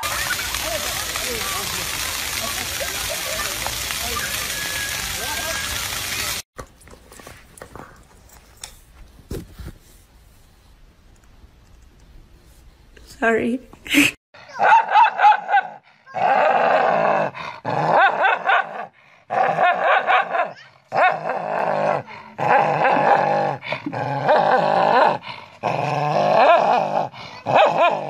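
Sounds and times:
dog snarling and growling: 15.6 - 28.0.

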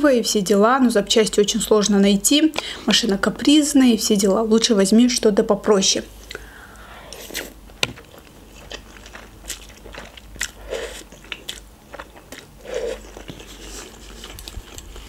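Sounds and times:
chewing: 7.2 - 15.0
noodles slurped: 8.5 - 15.0.

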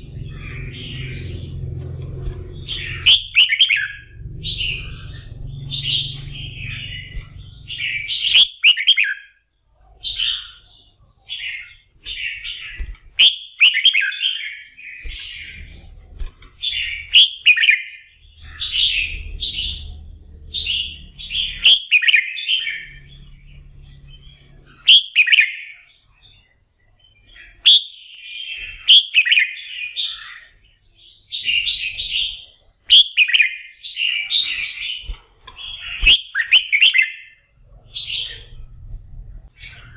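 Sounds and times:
bird warbling: 0.0 - 9.3.

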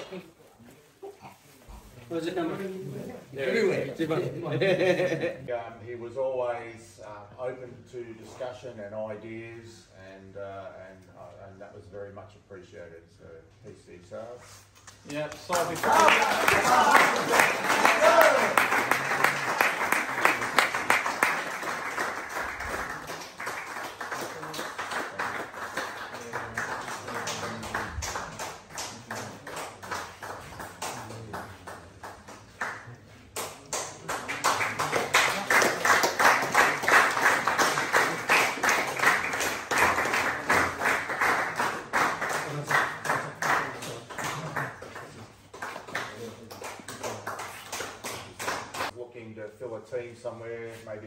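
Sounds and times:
people clapping: 14.8 - 49.0.

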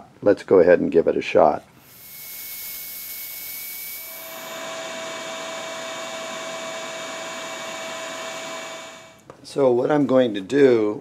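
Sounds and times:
bandsaw cutting board: 1.8 - 9.2
steady tone: 1.8 - 9.2.

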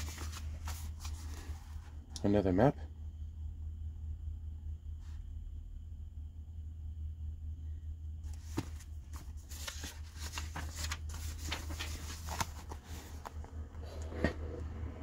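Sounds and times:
book pages rustling: 0.0 - 2.0, 8.3 - 14.4
steady low hum: 0.0 - 15.0.

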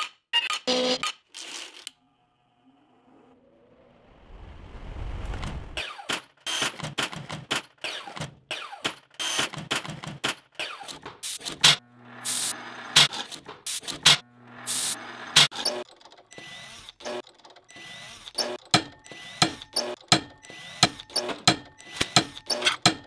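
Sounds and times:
rushing sound with low rumble: 2.7 - 5.8.

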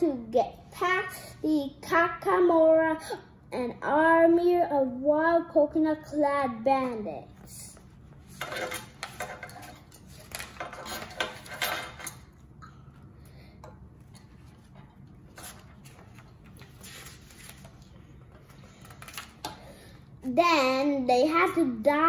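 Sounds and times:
paper pages rustling: 15.3 - 19.4.

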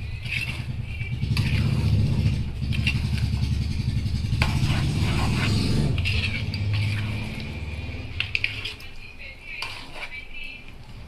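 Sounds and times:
spoon stirring and scraping pot: 0.0 - 11.0.

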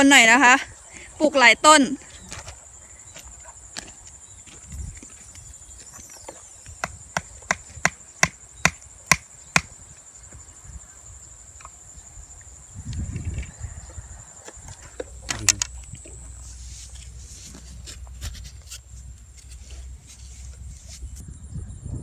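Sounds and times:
high insect buzz: 0.0 - 21.9
sharp knocks: 6.8 - 9.7.

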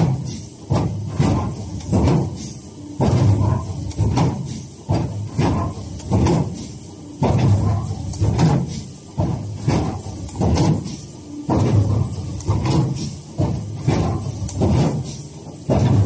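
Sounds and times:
machine knocking and rumbling: 0.0 - 16.0.

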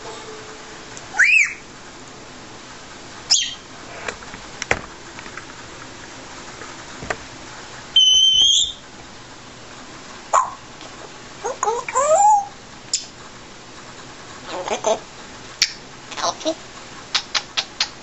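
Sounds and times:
parrot whistling: 1.1 - 1.7, 3.3 - 3.7, 8.0 - 8.8, 11.4 - 13.1
parrot clicks: 17.1 - 18.0.

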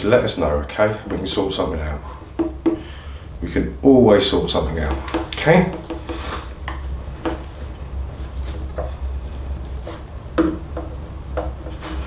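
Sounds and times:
steady low hum: 0.0 - 12.0
knocks and rubs on drum: 4.8 - 6.4, 8.3 - 12.0.

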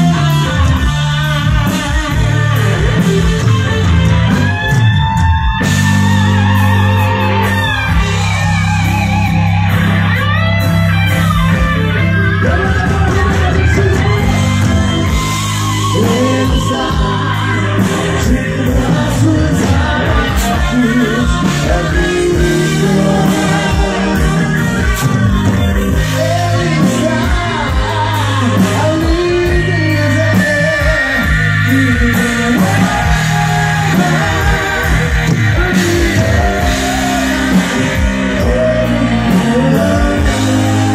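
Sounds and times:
man singing: 0.0 - 3.0, 12.3 - 40.9
bass: 0.0 - 40.9
drums: 0.0 - 40.9
electric guitar: 0.0 - 40.9
keyboard: 0.0 - 40.9.

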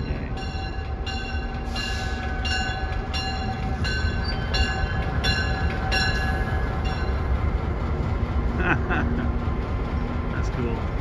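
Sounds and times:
locomotive bell ringing: 0.0 - 7.5
locomotive engine rumble: 0.0 - 11.0.

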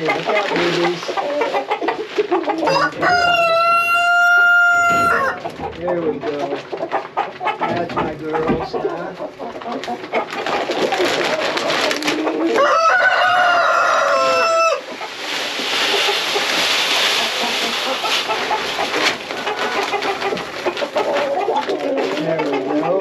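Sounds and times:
hens clucking: 0.0 - 23.0
rooster crowing: 2.6 - 5.4, 12.6 - 14.8.

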